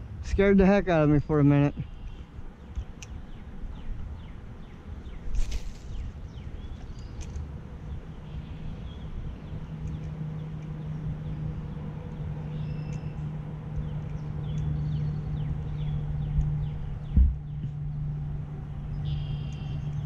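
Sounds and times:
steady low hum: 0.0 - 20.0
fishing rod swish: 5.3 - 6.1
faint bird chirps: 12.5 - 13.2, 19.0 - 20.0.

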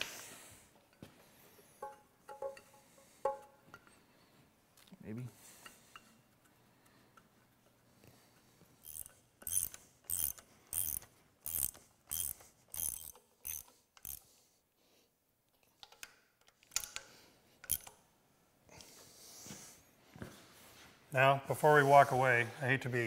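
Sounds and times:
ratchet wrench clicking: 8.8 - 14.4, 15.8 - 18.0.

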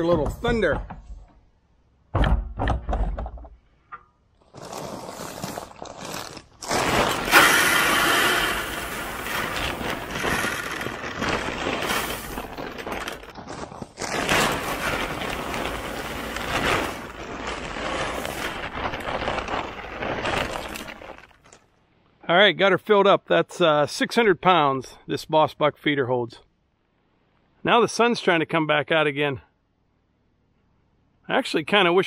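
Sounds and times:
grain pouring into hopper: 6.6 - 13.3, 14.0 - 21.4.

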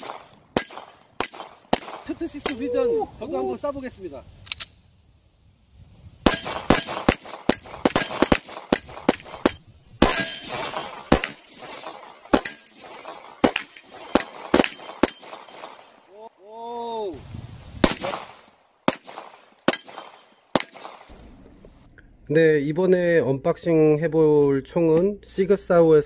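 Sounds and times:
pistol shots: 0.0 - 2.6, 6.3 - 15.9, 17.8 - 21.1.

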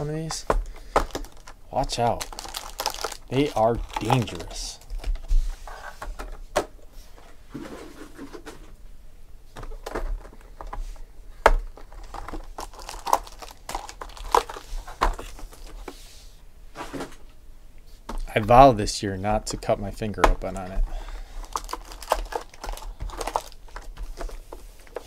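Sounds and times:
foil packs crinkling: 0.2 - 5.2, 11.7 - 15.7, 20.5 - 25.0
packs tapping on table: 0.3 - 1.6, 21.4 - 25.0.

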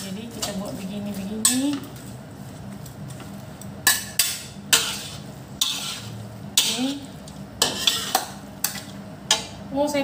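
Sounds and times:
metal spatulas scraping wok: 3.8 - 9.6.

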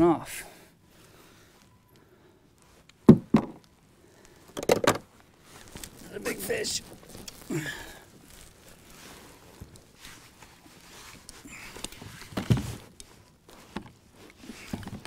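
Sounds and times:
rustling: 1.0 - 15.0
heavy thump: 3.1 - 3.6.

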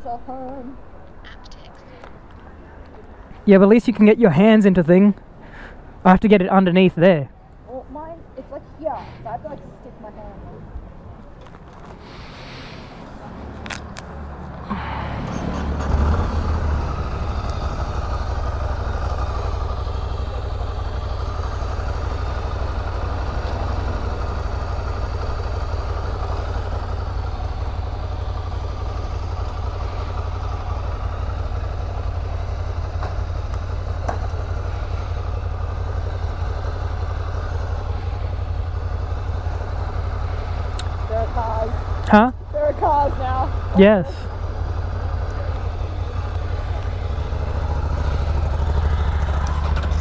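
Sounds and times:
motorcycle engine running: 13.4 - 50.0.

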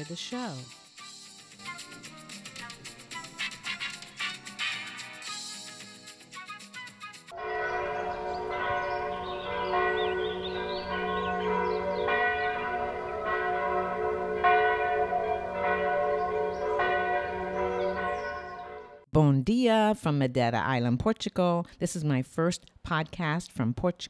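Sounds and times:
church bells ringing: 7.3 - 19.1.

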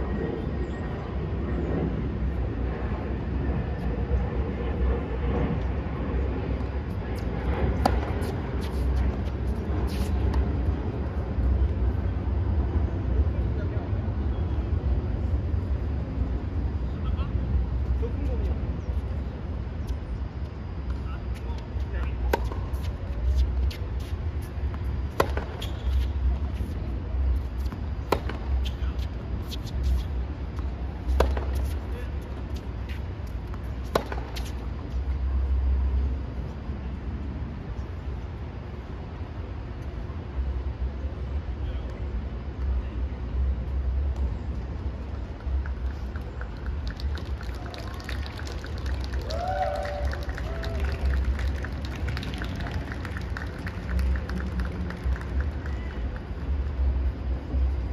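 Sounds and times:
steady low rumble: 0.0 - 57.9
tennis ball struck by rackets: 7.8 - 8.3, 25.1 - 26.0, 27.7 - 28.8, 31.1 - 31.8, 33.8 - 34.5
racquet hitting tennis ball: 25.1 - 25.8, 33.8 - 34.5.

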